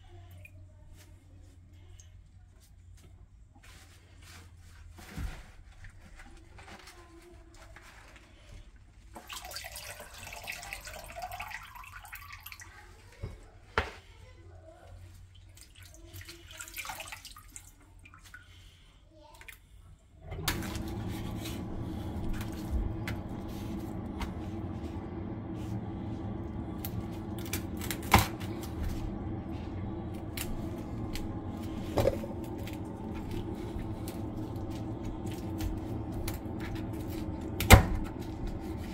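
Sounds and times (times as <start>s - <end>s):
tap water splashing into colander: 9.1s - 13.2s, 15.4s - 18.4s
steady hum: 20.2s - 38.9s.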